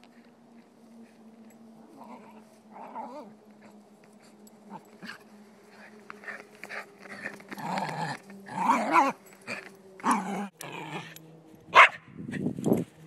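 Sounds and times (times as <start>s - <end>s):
dog growling: 1.9s - 3.7s, 4.7s - 11.2s
dog barking: 11.7s - 12.0s.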